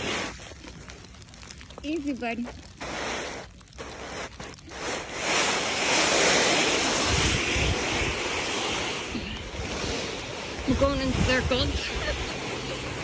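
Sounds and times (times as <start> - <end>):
plastic sled sliding over snow: 0.0 - 13.0
snow crunching: 0.0 - 13.0.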